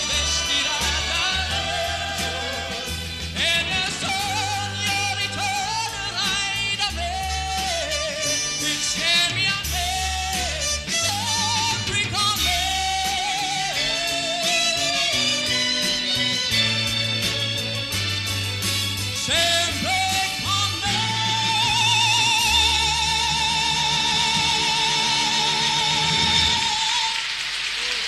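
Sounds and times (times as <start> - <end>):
backing vocal group: 0.0 - 15.7
man singing pop song: 0.0 - 16.0, 19.2 - 27.2
bass line: 0.0 - 26.7
orchestra playing: 0.0 - 27.2.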